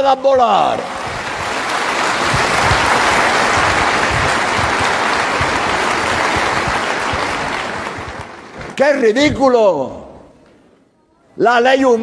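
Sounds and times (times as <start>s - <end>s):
audience applauding: 0.6s - 9.0s.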